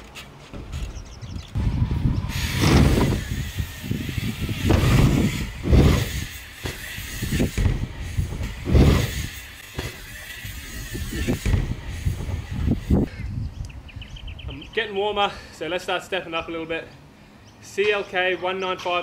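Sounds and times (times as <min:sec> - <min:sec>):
bike tyres rumbling over ramps: 0:00.6 - 0:13.0.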